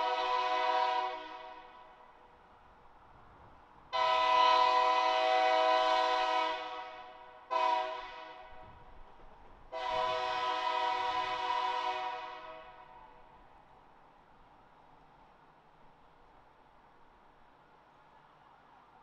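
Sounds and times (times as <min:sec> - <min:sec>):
locomotive air horn blasts: 0:00.0 - 0:01.9, 0:04.0 - 0:08.7, 0:09.7 - 0:13.0.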